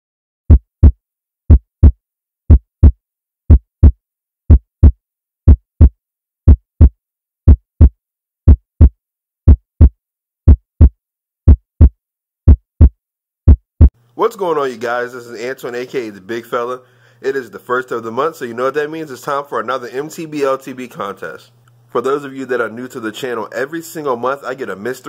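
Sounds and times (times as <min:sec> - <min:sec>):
heartbeat: 0:00.5 - 0:05.9, 0:06.5 - 0:06.9, 0:07.5 - 0:07.9, 0:08.5 - 0:08.9, 0:09.5 - 0:09.9, 0:10.5 - 0:10.9, 0:11.5 - 0:11.9, 0:12.5 - 0:12.9, 0:13.5 - 0:13.9.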